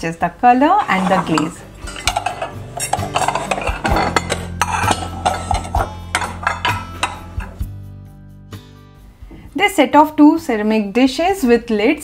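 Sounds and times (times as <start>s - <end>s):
ceramic dishes clinking and knocking: 0.8s - 7.6s.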